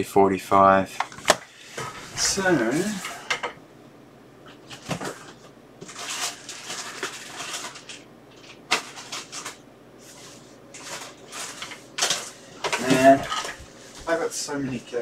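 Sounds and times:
cables rustling and clattering: 4.5 - 15.0.

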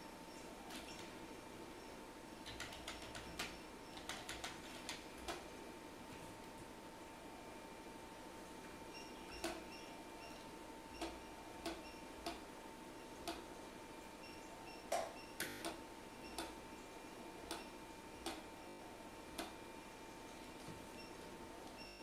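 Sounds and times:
faint electrical hum: 0.0 - 22.0
keyboard keystrokes: 2.4 - 5.4.

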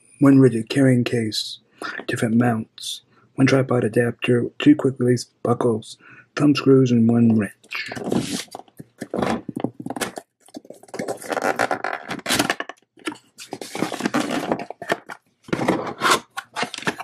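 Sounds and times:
cardboard box scraping and knocking: 13.5 - 17.0.

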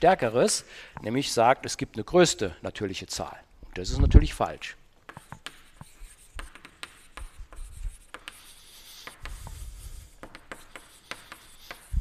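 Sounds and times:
chalk writing on blackboard: 5.0 - 12.0.

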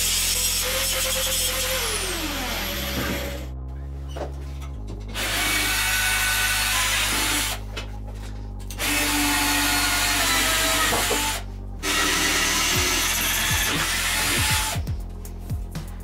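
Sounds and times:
cordless drill boring through steel: 0.0 - 3.5, 5.2 - 7.6, 8.7 - 14.8.

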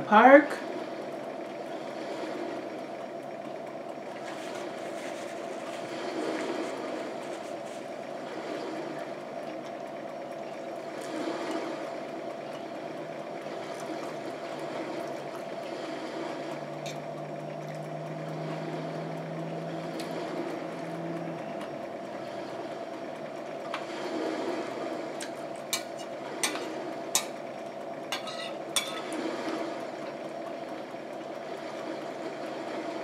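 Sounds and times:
mechanical hum: 0.0 - 33.0
low tone: 12.3 - 23.4.

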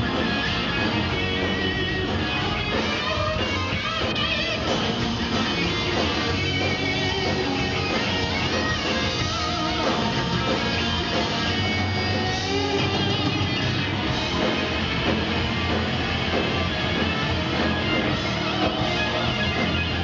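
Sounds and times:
electric guitar: 0.0 - 20.0
hard rock band playing: 0.0 - 20.0.

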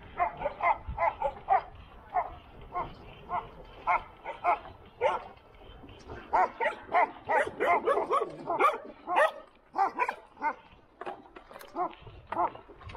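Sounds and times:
dogs barking: 0.0 - 5.4, 6.2 - 10.8.

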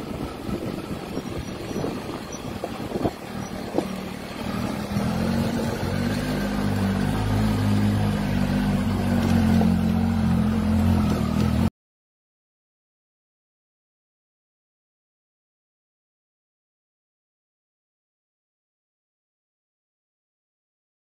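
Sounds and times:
motorcycle engine running: 0.0 - 11.7.

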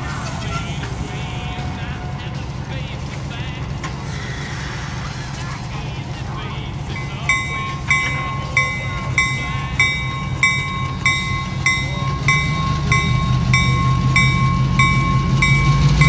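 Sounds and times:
diesel locomotive rumble: 0.0 - 16.0
locomotive bell ringing: 6.8 - 16.0.

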